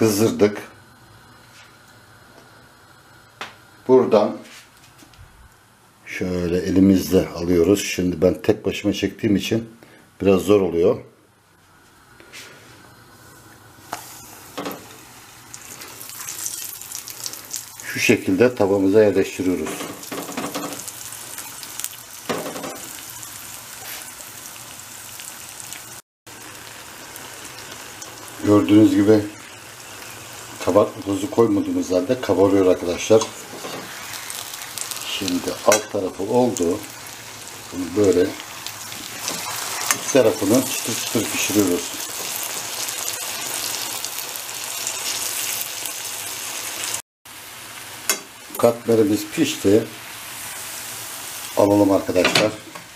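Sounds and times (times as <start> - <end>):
dough frying in hot oil: 13.4 - 52.9.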